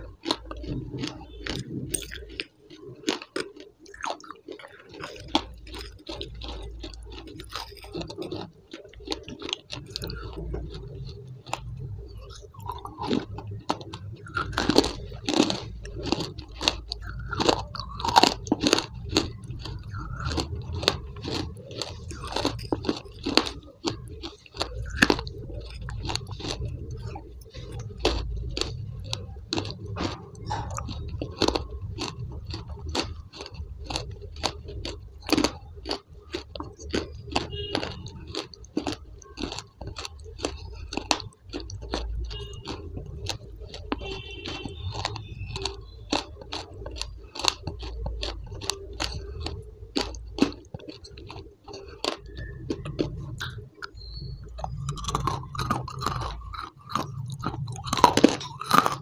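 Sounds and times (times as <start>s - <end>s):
chewing and crunching food: 0.0s - 59.0s.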